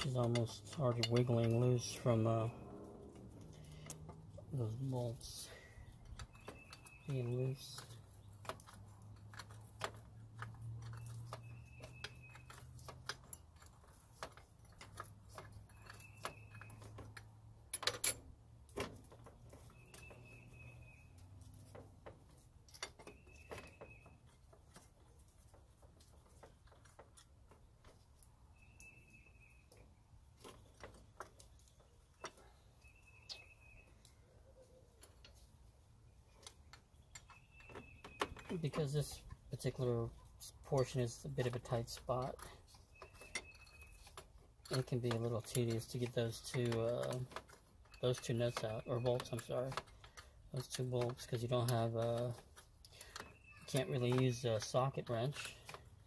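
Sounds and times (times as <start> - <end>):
wrench clinking on metal: 0.0 - 2.6
bird chirping: 0.0 - 14.1, 14.7 - 17.3, 19.4 - 24.9, 27.5 - 56.0.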